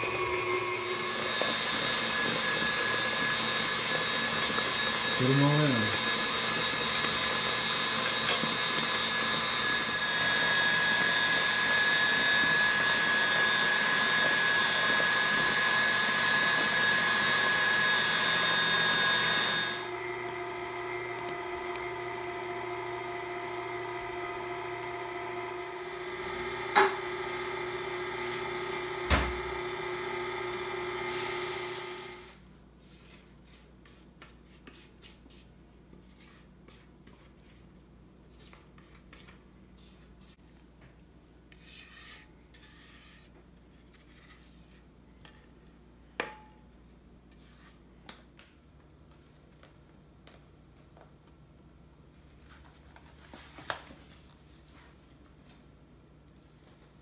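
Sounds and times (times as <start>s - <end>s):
stand mixer motor whining: 0.0s - 32.3s.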